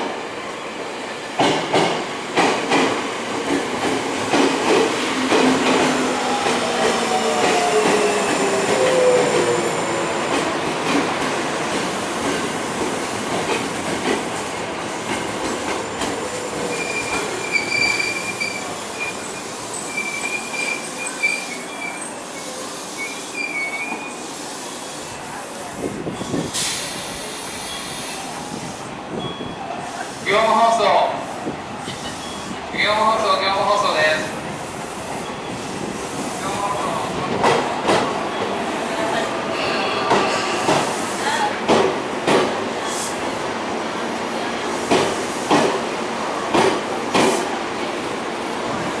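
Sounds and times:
train wheels clacking over rail joints: 1.4s - 9.5s, 37.3s - 38.2s, 41.6s - 43.0s, 44.8s - 45.8s, 46.5s - 47.5s
train decelerating whine: 3.7s - 10.8s
train brakes squealing: 5.4s - 10.2s, 15.8s - 30.7s, 31.8s - 33.2s, 34.7s - 37.0s, 38.0s - 41.6s.

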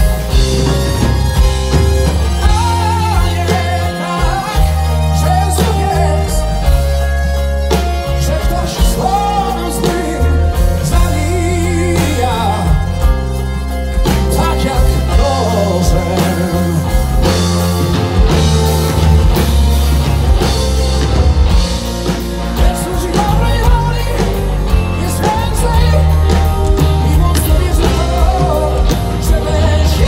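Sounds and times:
live rock band playing: 0.0s - 30.0s
male lead vocal: 2.4s - 17.7s, 22.4s - 30.0s.

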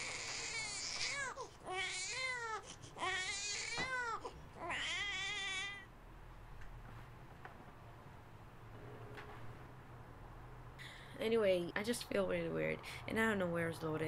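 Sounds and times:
high-pitched baby-like crying wail: 0.0s - 5.9s.

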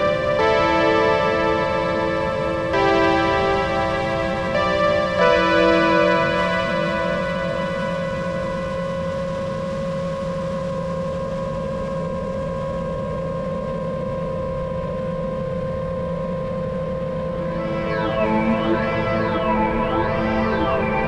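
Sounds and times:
synthesizer drone chord: 0.0s - 9.0s, 17.4s - 21.0s.

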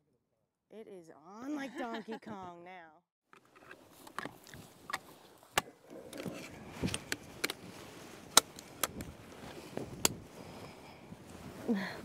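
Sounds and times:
magazine snapping into place: 8.3s - 9.1s.

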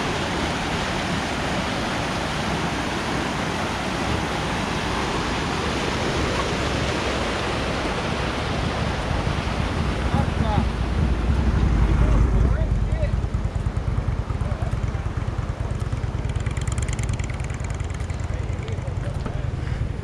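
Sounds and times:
river water rushing over rapids: 0.0s - 14.4s.

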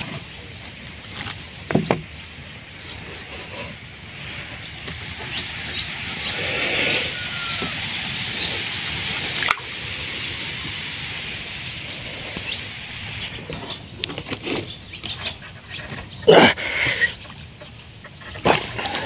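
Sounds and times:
water sloshing and splashing: 7.6s - 12.5s.

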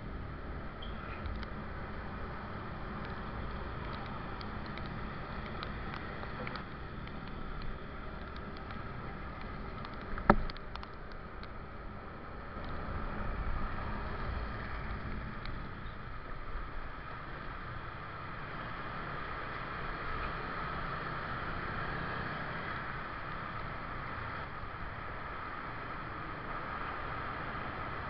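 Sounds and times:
motorcycle road rumble: 0.0s - 28.0s
light ticks: 0.8s - 1.6s, 2.7s - 11.6s, 12.6s - 12.8s, 14.1s - 16.0s.

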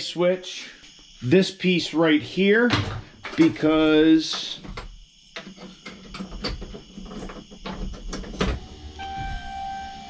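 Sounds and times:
clicks and knocks of hand work: 2.6s - 8.6s
electronic warning chime: 9.0s - 10.0s.

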